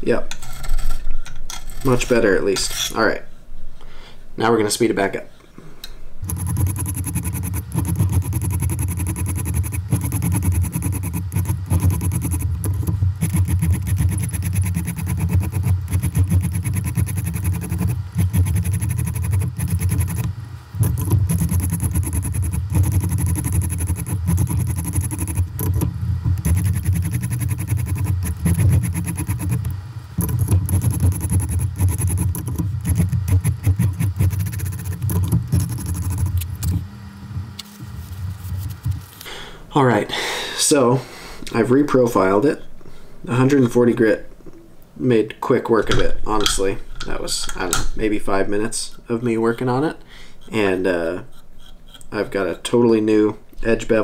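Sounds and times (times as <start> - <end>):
sharpening stone scraping knife edge: 51.2 - 52.1.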